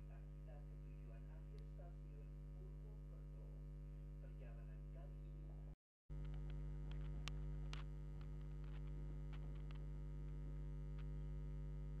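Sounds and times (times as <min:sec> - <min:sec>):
faint clicks and ticks: 0:06.1 - 0:11.3.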